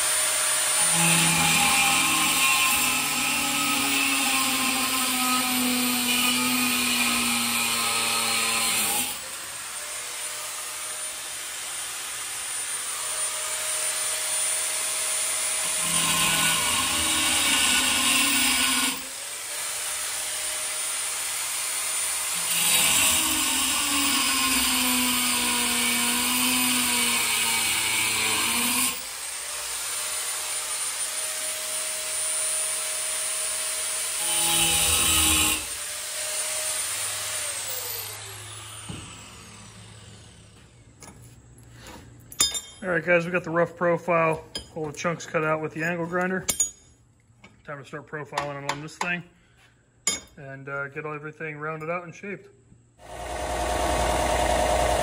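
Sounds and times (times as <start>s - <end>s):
angle grinder cutting steel: 0.0s - 40.8s, 53.0s - 55.0s
angle grinder running free: 0.0s - 40.9s, 53.0s - 55.0s.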